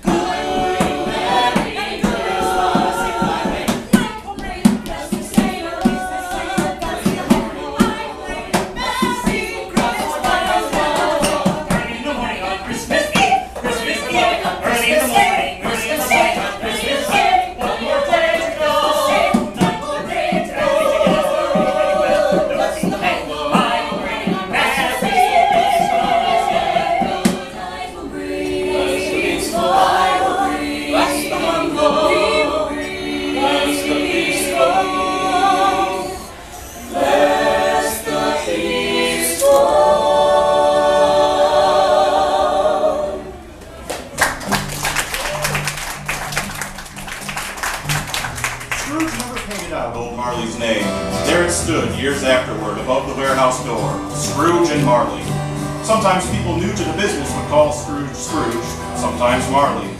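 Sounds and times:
group singing a cappella: 0.0s - 43.8s, 50.3s - 59.9s
people clapping: 43.8s - 50.0s.

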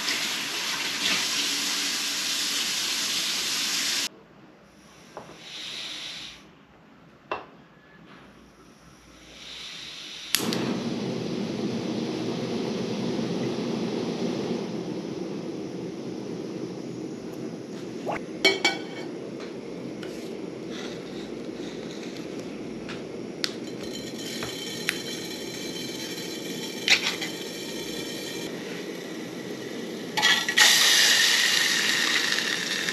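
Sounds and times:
gas hissing: 5.1s - 6.5s, 9.1s - 32.9s
gas flame roaring: 9.2s - 32.9s
burner ignition click: 10.3s - 17.5s.

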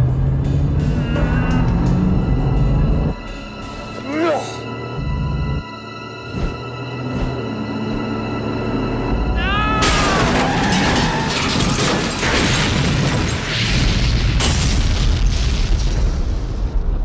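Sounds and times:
explosions: 9.8s - 17.0s.

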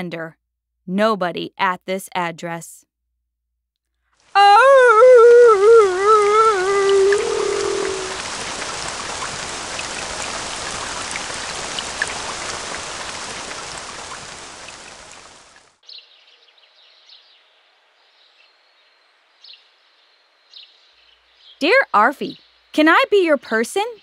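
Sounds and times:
heavy rain: 4.3s - 15.8s.

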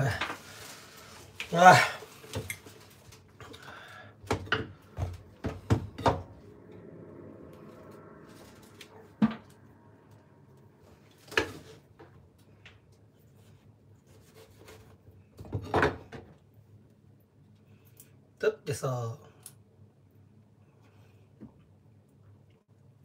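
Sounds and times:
rind rustling: 0.0s - 4.0s.

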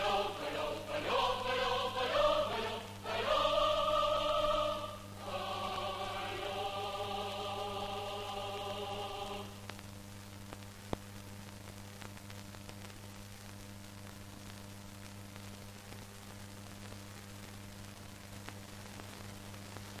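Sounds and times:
low hum: 0.0s - 10.4s
steady film hiss: 0.0s - 20.0s
faint clicks and crackles: 9.6s - 20.0s.

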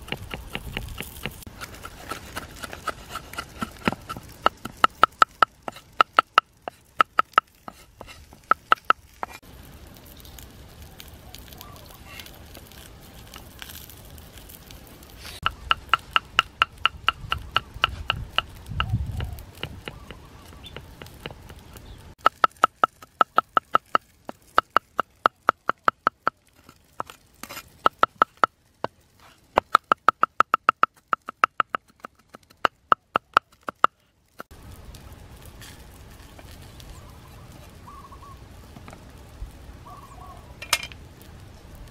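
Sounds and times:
cleaver chopping on wooden board: 0.0s - 9.4s, 15.4s - 21.6s, 22.2s - 26.4s, 29.6s - 34.0s.

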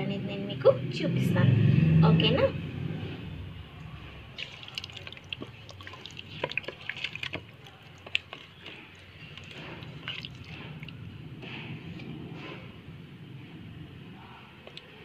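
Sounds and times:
hand squishing wet marinade: 3.8s - 12.1s.

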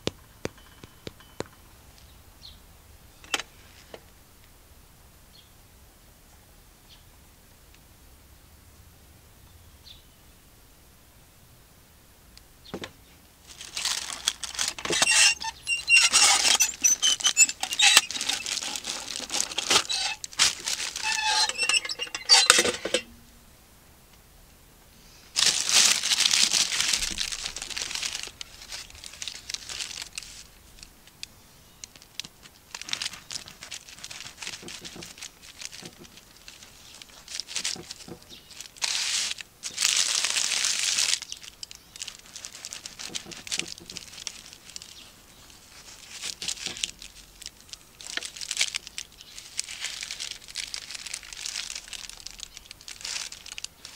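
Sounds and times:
baking paper crinkling: 12.8s - 23.1s, 25.4s - 30.9s, 31.8s - 53.9s.

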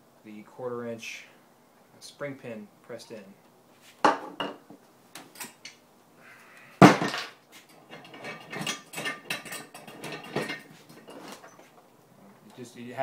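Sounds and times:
vise clattering and rattling: 6.8s - 11.7s.

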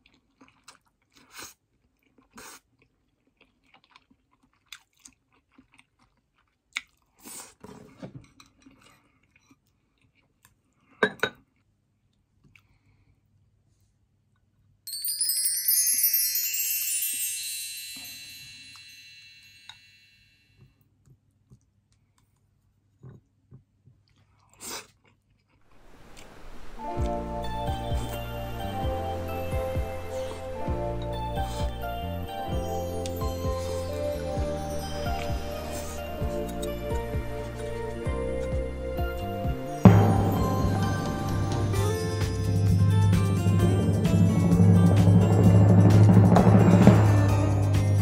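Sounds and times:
chewing: 0.0s - 12.9s, 23.0s - 25.6s
glittering descending chime: 14.9s - 20.4s, 25.8s - 48.0s.

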